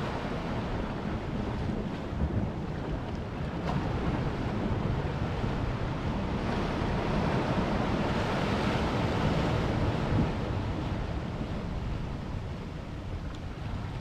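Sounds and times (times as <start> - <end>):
ocean waves washing against boulders: 0.0 - 14.0
wind buffeting the microphone: 0.0 - 14.0.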